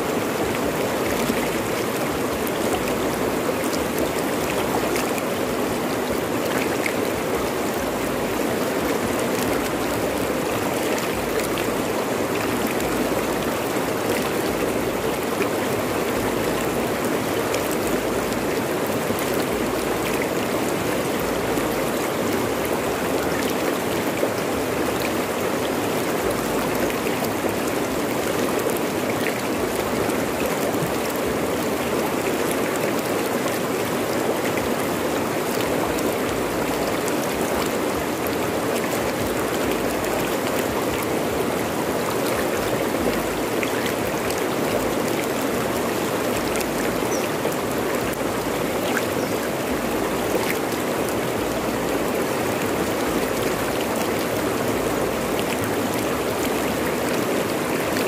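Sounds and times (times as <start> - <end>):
river rushing over rocks: 0.0 - 58.0.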